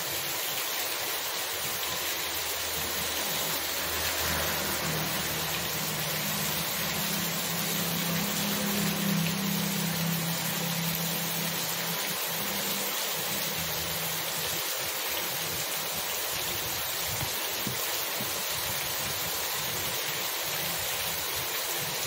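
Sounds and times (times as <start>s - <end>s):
heavy rain on a street: 0.0s - 22.0s
scooter engine hum: 2.3s - 12.7s.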